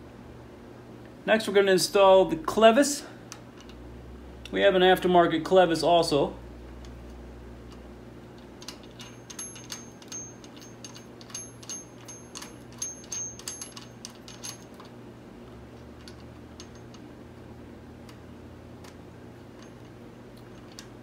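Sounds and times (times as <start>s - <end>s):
steady low hum: 0.0s - 21.0s
light metallic clicks and clinks: 8.6s - 14.9s.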